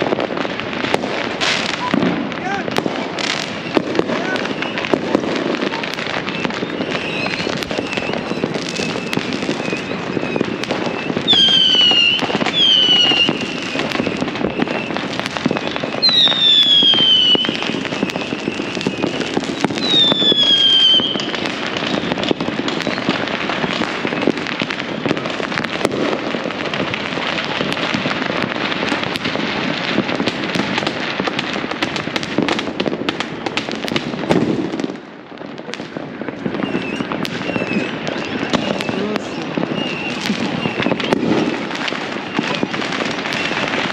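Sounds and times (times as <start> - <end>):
fireworks crackling: 0.0 - 43.9
firework whistles falling in pitch: 3.2 - 26.2, 36.4 - 43.9.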